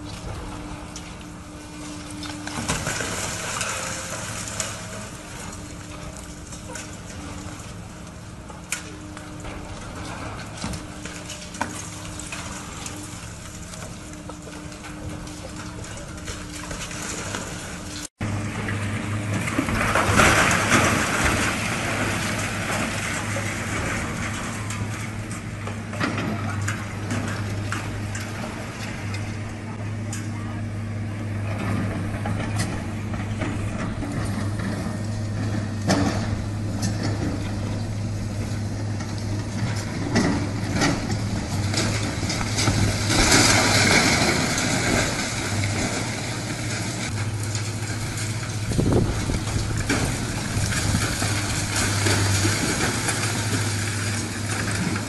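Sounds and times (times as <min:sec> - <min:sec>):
excavator engine and hydraulics hum: 0:00.0 - 0:55.0
concrete cracking and debris clattering: 0:39.0 - 0:55.0
rubble falling: 0:40.0 - 0:46.1.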